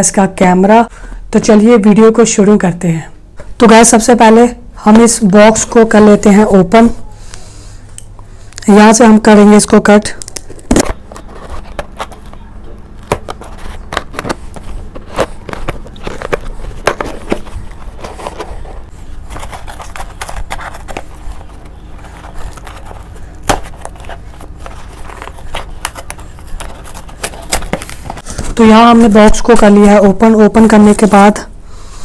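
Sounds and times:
cardboard box rustling: 0:10.6 - 0:28.4.

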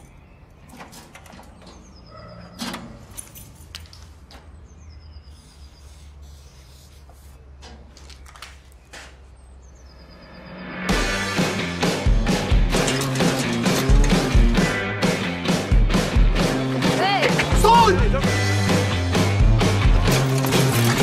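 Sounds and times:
metal mailboxes clicking and knocking: 0:00.6 - 0:03.6, 0:12.4 - 0:14.6, 0:19.9 - 0:21.0.

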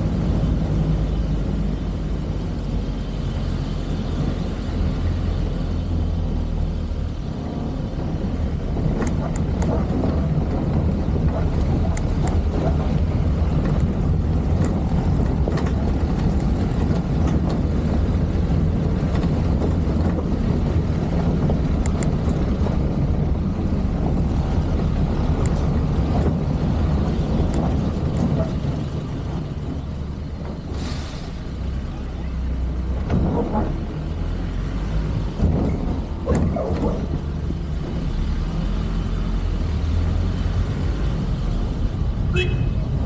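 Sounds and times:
vehicle engine and tyre rumble: 0:00.0 - 0:43.0.

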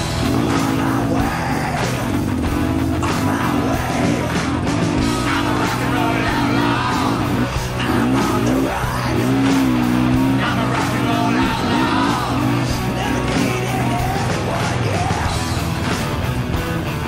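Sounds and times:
electric guitar: 0:00.0 - 0:17.0
person singing: 0:00.2 - 0:02.2, 0:02.8 - 0:15.5.

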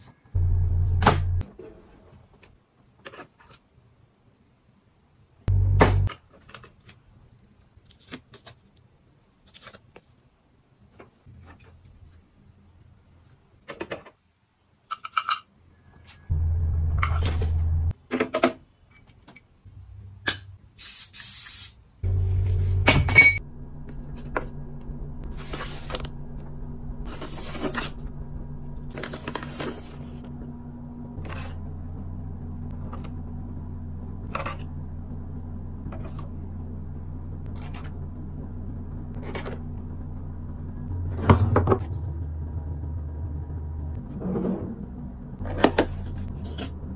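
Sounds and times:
steady low hum: 0:00.1 - 0:01.4, 0:05.4 - 0:06.1, 0:16.3 - 0:18.0, 0:22.0 - 0:46.9.

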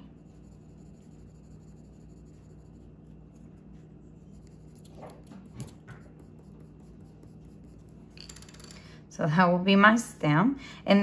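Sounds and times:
colored pencil scratching paper: 0:00.0 - 0:08.2.

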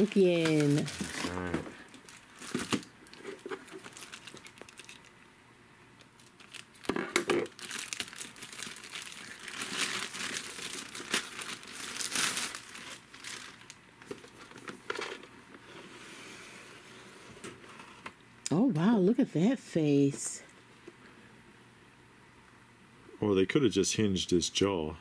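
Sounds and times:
plastic bag crinkling: 0:00.0 - 0:05.2, 0:06.0 - 0:15.4.

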